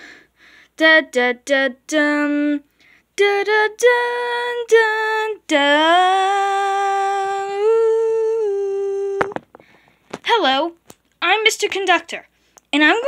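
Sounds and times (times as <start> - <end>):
person humming: 5.8 - 9.4.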